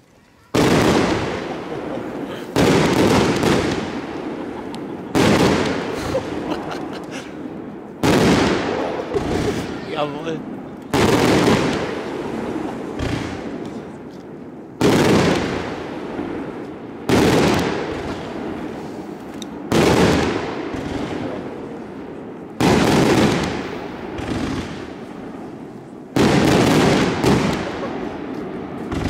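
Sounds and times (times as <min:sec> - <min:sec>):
firework shell bursts crackling: 0:00.1 - 0:10.0.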